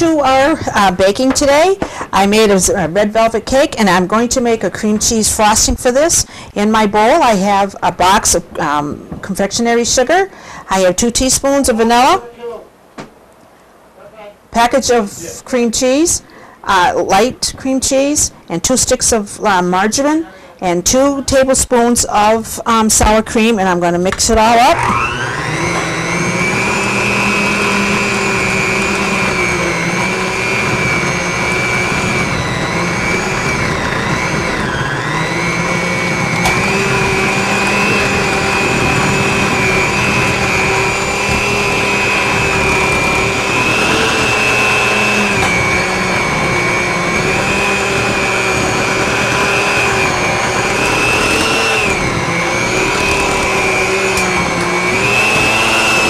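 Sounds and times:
electric hand mixer whining: 24.3s - 56.0s.

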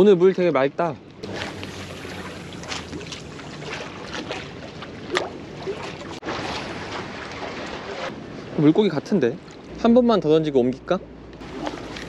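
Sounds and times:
water splashing against rocks: 1.2s - 8.2s, 11.4s - 12.0s.

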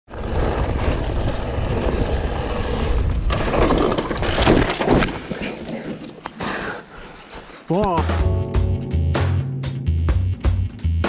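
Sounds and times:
bike rolling over rocky trail: 0.1s - 6.4s
tires scraping and crunching: 0.1s - 7.7s.

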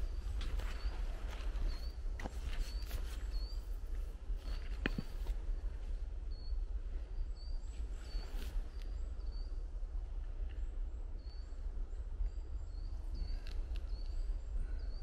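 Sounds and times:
small bird chirping: 0.5s - 5.2s
faint clicks: 13.2s - 14.2s.

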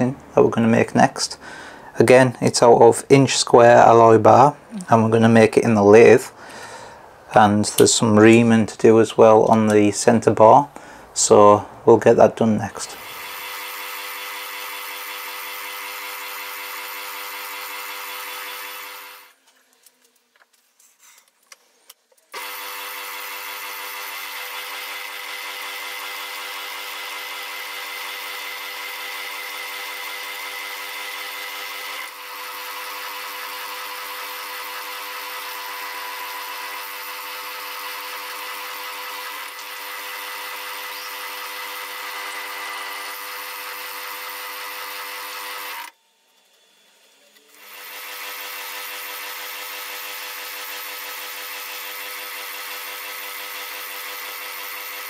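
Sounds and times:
metal lathe drilling whine: 12.9s - 19.3s, 22.4s - 55.0s.

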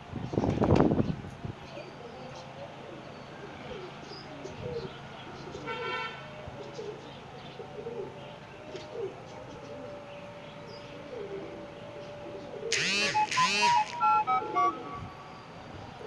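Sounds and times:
pigeons cooing: 1.7s - 16.0s
short horn toot: 12.7s - 15.3s.

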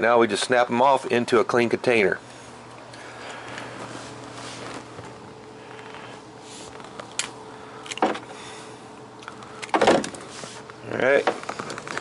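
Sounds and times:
steady background hum: 0.0s - 12.0s
knocks and clicks handling carcass: 7.9s - 8.3s, 9.6s - 10.2s.

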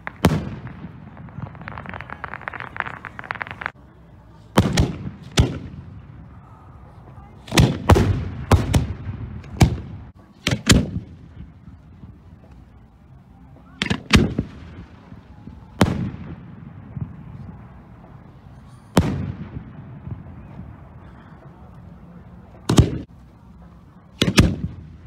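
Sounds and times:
firework booms with rumbling echo: 0.0s - 3.8s, 4.6s - 6.4s, 7.5s - 11.6s, 13.8s - 18.3s, 19.0s - 20.9s.

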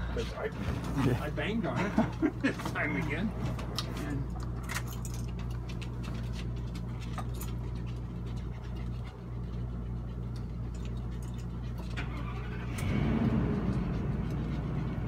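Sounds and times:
air conditioner humming: 0.0s - 12.3s.

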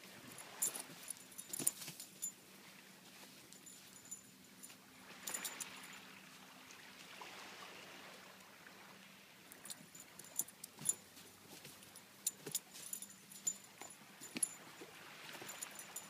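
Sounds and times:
metallic jingling clicks: 9.6s - 11.0s, 11.8s - 14.6s.

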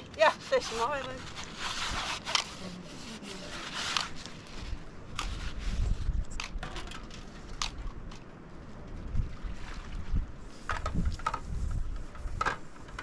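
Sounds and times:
plastic bowl rubbed and scraped: 0.0s - 6.1s
wind rumble on microphone: 0.0s - 13.0s.

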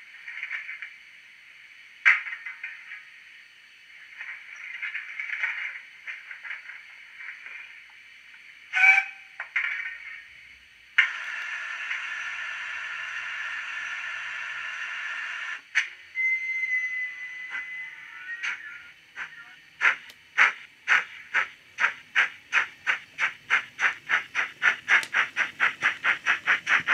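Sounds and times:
model locomotive clicks and hissing: 0.0s - 3.3s, 3.9s - 16.0s, 16.7s - 26.9s
steady steam hiss: 0.0s - 26.9s
short train whistle toot: 8.7s - 9.4s, 16.1s - 19.5s.

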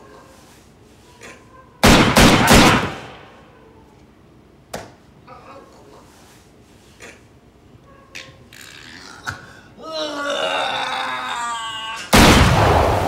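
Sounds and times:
loud gunshots: 1.8s - 3.3s, 12.1s - 13.0s.

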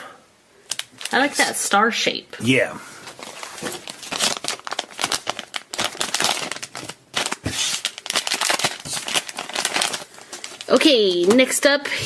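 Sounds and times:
foil wrapper crinkling and tearing: 0.7s - 1.5s, 3.2s - 11.6s.

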